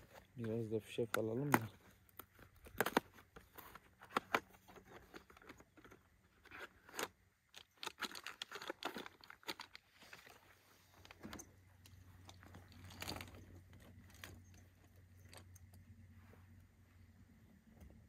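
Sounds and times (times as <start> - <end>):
shotgun shells clicking: 7.5 - 9.8.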